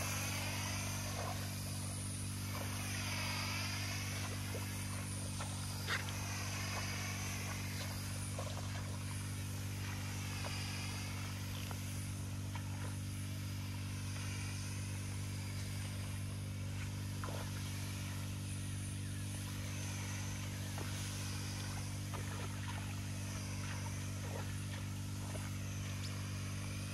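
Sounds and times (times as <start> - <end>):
small petrol engine running: 0.0 - 26.9.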